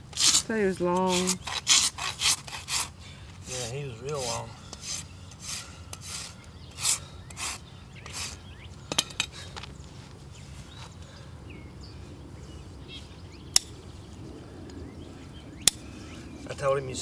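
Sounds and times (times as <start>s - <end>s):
hoof rasp scraping hoof: 0.0s - 11.0s.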